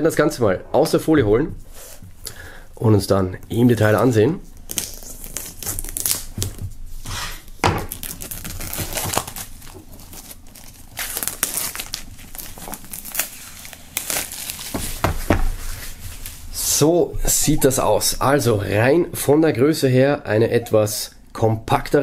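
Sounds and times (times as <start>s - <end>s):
plastic film crinkling: 3.8s - 6.7s, 7.8s - 16.6s.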